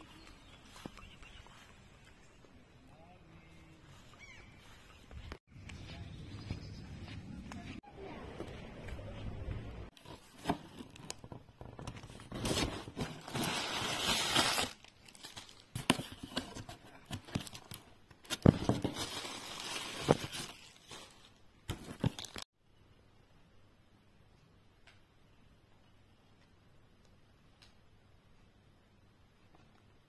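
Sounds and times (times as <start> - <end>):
plastic wrapping rustling and tearing: 9.9 - 22.5
cardboard box being opened: 10.0 - 20.8.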